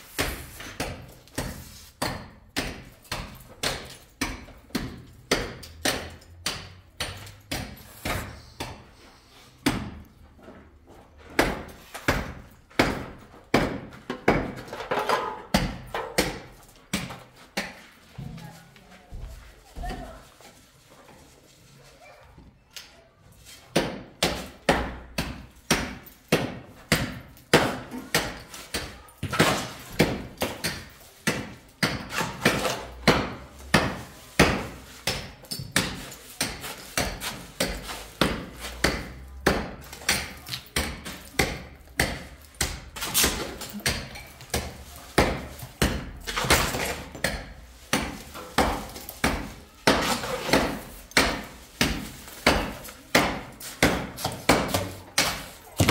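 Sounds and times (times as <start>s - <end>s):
shovel scraping concrete: 32.0s - 35.1s, 43.0s - 55.9s.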